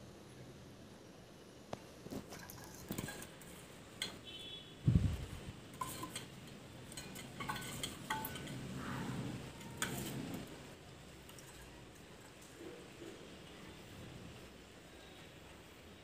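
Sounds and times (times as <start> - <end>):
metal spoon scraping steel bowl: 5.7 - 10.7.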